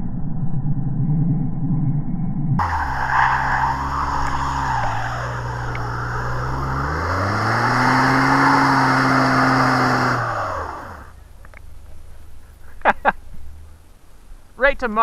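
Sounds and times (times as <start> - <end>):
wheels spinning in slush: 2.6 - 11.3
truck engine revving: 2.6 - 14.1.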